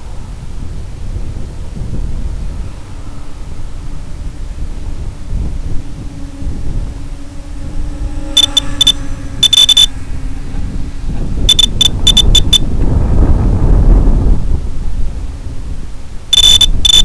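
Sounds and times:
wind rumble on microphone: 0.0 - 17.0
short high electronic beeps: 8.4 - 9.9, 11.5 - 12.6, 16.4 - 17.0.

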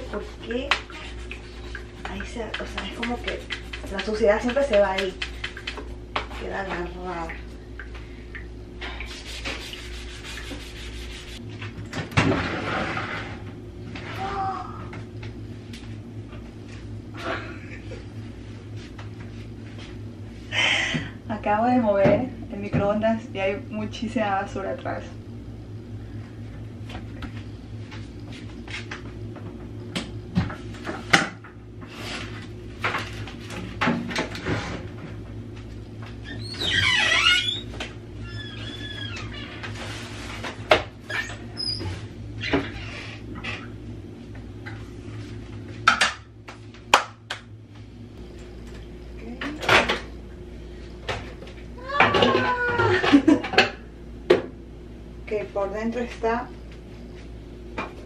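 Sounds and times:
steady low hum: 0.0 - 58.0
scrub brush scratching steel sink: 9.1 - 11.4.

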